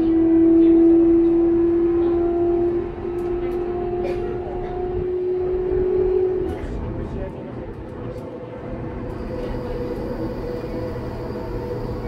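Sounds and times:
wheels rumbling on rails: 0.0s - 12.0s
train motors whining: 8.0s - 12.0s.

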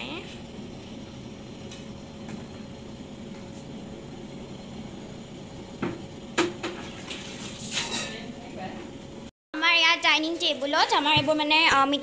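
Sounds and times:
low kitchen hum: 0.0s - 12.0s
utensils clinking on metal pot: 7.6s - 8.3s.

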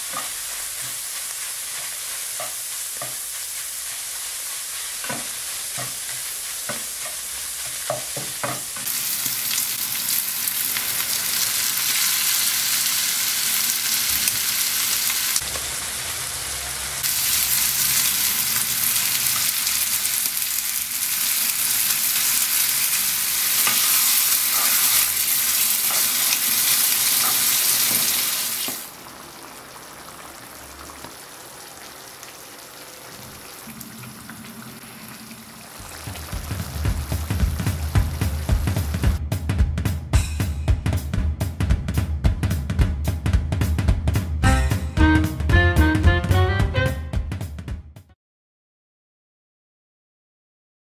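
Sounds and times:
food sizzling in a frying pan: 0.0s - 39.2s.

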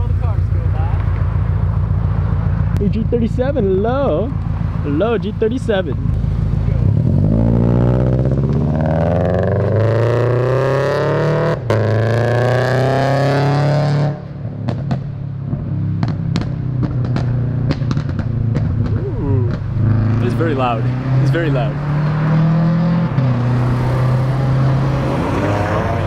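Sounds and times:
exhaust pops and crackles: 0.0s - 6.9s, 14.6s - 20.7s
car engine accelerating hard: 0.0s - 26.0s.

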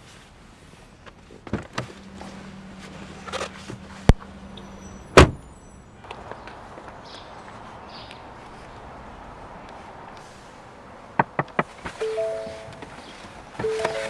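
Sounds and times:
car door shutting: 5.0s - 5.4s, 11.2s - 14.0s
car door clicks and knocks: 11.2s - 12.0s.

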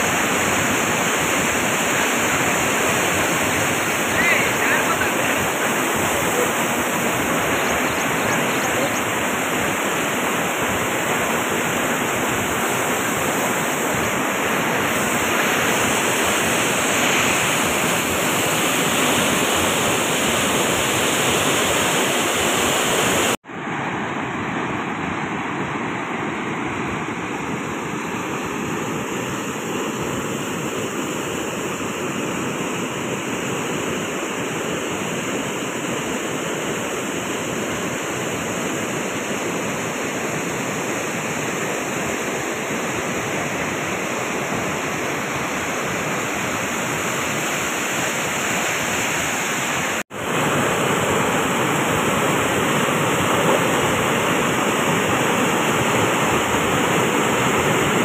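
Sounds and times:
floodwater pouring over spillway: 0.0s - 23.4s.

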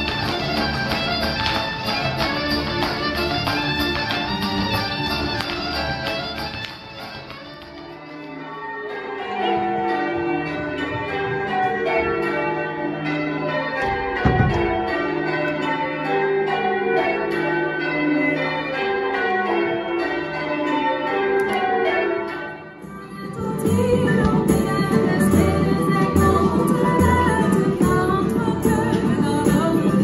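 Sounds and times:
bells ringing: 0.0s - 30.0s.

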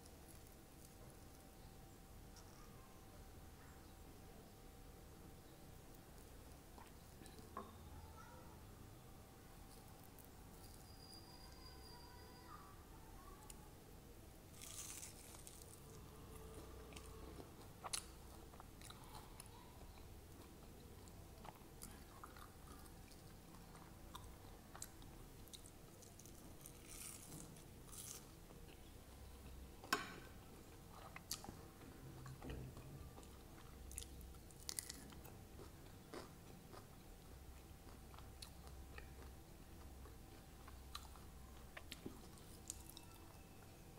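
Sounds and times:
crunchy bites: 14.5s - 15.9s, 33.9s - 36.9s
person chewing: 14.5s - 29.6s, 30.6s - 43.4s.

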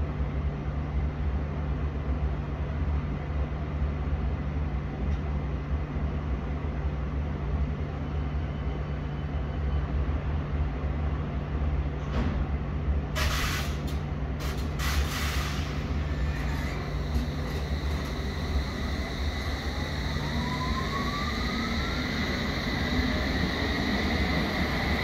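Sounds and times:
train humming: 13.1s - 25.0s
short hissing bursts: 14.4s - 16.0s.

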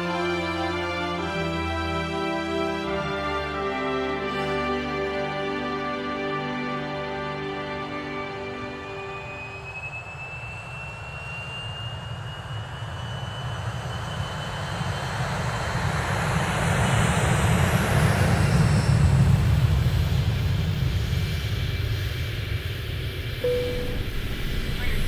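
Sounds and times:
jet engine whine and rumble: 8.1s - 25.0s.

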